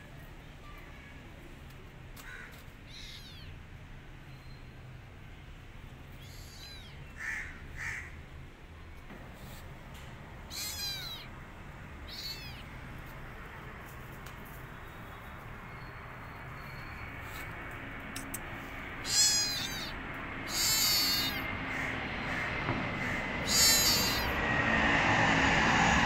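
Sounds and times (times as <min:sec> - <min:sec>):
kitten meowing: 0:02.8 - 0:03.6, 0:06.2 - 0:07.0, 0:10.5 - 0:11.3, 0:12.0 - 0:12.8, 0:19.0 - 0:21.5, 0:23.4 - 0:24.4.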